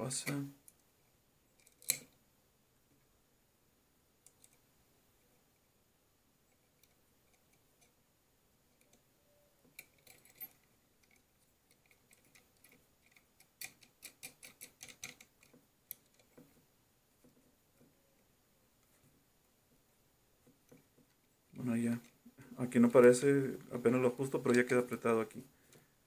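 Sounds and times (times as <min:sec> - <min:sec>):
metal nut clicking on bolt: 0:01.6 - 0:02.2, 0:09.7 - 0:16.4.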